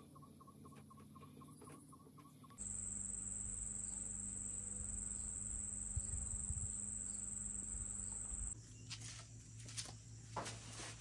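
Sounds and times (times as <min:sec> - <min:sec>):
insect trilling: 0:02.6 - 0:08.6.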